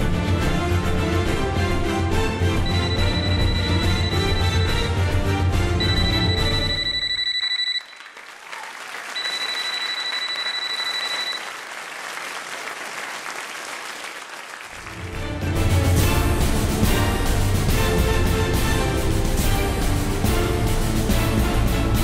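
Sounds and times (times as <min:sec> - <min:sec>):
music: 0:00.0 - 0:07.2, 0:14.8 - 0:22.0
audience applauding: 0:07.3 - 0:15.4
steady high tone: 0:09.2 - 0:11.4.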